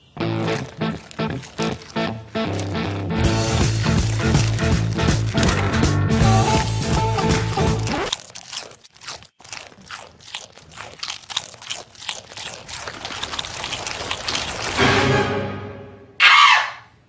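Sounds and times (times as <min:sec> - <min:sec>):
goat crunching chips: 0:00.0 - 0:15.2
music: 0:02.4 - 0:08.0, 0:14.8 - 0:16.2.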